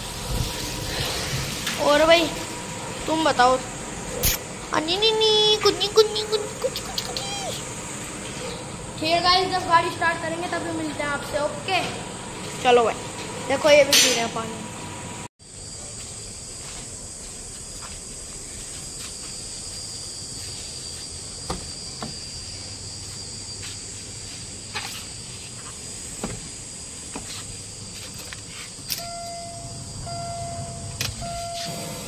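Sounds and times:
crickets chirring: 0.0s - 14.5s, 15.4s - 32.0s
car warning chime beeping: 29.0s - 32.0s.

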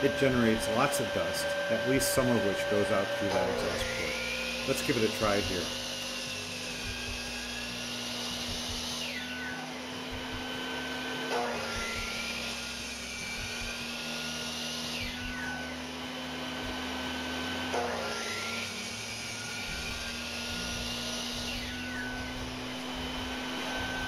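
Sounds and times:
miter saw motor whining: 0.0s - 24.0s
shop vac running: 0.0s - 24.0s.

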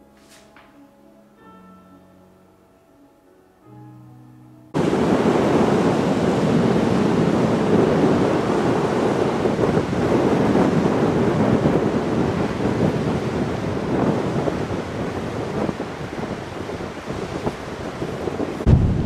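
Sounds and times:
waves on shore: 4.8s - 19.0s
wind buffeting microphone: 4.8s - 19.0s.

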